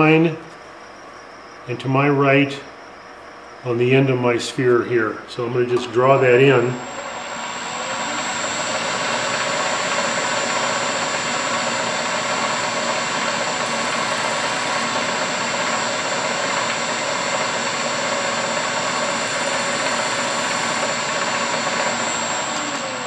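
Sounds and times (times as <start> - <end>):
wood lathe running: 5.9 - 23.0.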